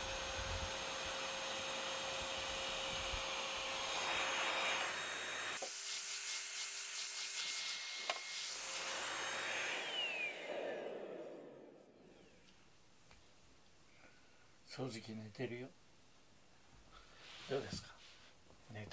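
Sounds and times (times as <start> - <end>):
vacuum cleaner running: 0.0 - 5.8, 7.9 - 12.5
nozzle rubbing on foam mat: 17.1 - 18.4.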